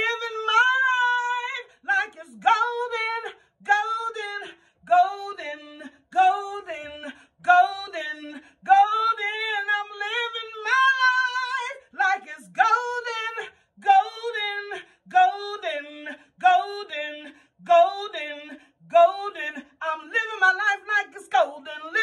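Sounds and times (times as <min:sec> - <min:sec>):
woman singing a cappella: 0:00.0 - 0:22.0
singer breathing: 0:07.1 - 0:07.4.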